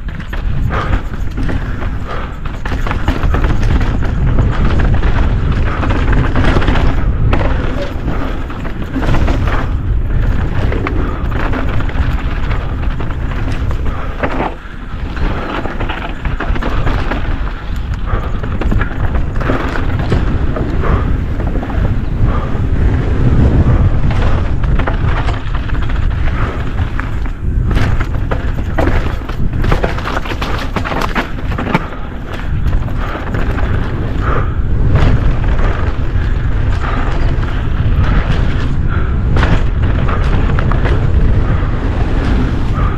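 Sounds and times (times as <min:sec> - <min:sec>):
chain and frame rattling: 0:00.0 - 0:22.0
bike tyre noise: 0:00.0 - 0:42.9
wind buffeting microphone: 0:00.0 - 0:42.9.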